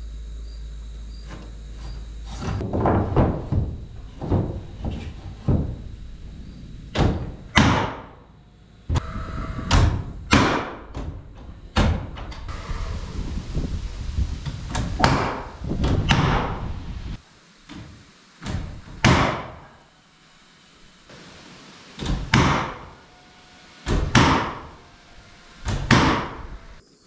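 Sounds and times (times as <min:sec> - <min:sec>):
loud sharp hammer knocks: 0:07.0 - 0:08.2, 0:09.7 - 0:10.9, 0:19.0 - 0:19.6, 0:22.0 - 0:23.0, 0:23.9 - 0:24.7, 0:25.7 - 0:26.4.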